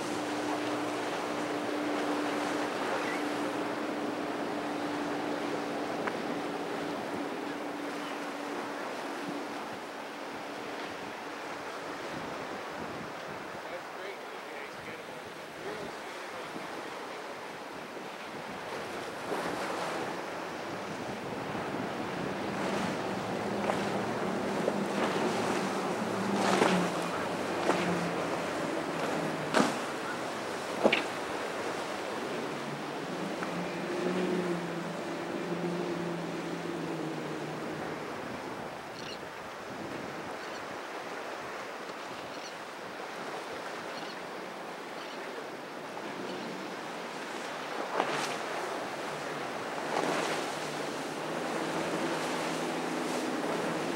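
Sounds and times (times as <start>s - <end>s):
water rushing: 0.0s - 42.1s, 45.4s - 53.9s
outboard engines droning: 0.0s - 53.9s
wind on microphone: 10.9s - 13.6s, 17.9s - 40.9s.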